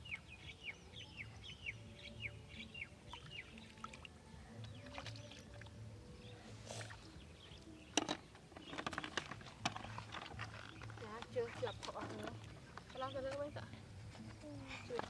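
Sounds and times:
plastic bucket clattering: 0:07.9 - 0:13.1.

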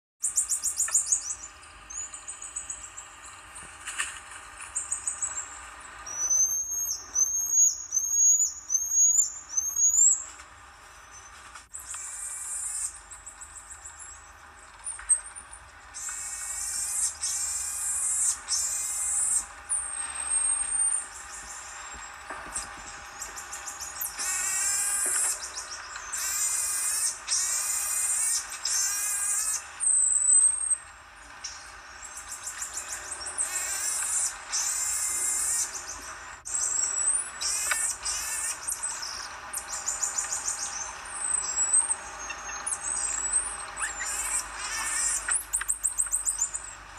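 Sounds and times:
marmosets high whistled calls: 0:00.2 - 0:03.0, 0:06.1 - 0:10.3, 0:11.1 - 0:14.2, 0:16.0 - 0:22.0, 0:23.1 - 0:30.8, 0:31.4 - 0:46.8
animal chirping whistles: 0:06.1 - 0:10.2, 0:39.8 - 0:46.6
animal clicking twitter: 0:31.4 - 0:46.7.

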